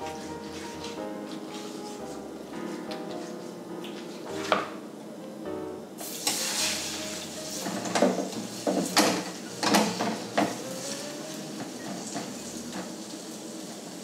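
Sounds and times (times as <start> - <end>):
batter sizzling in hot oil: 6.0 - 14.0.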